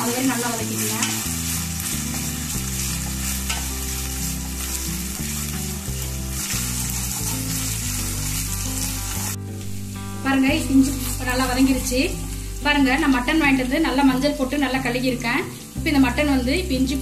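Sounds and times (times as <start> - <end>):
onions sizzling in hot oil: 0.0 - 17.0
wooden spatula stirring: 0.8 - 9.0.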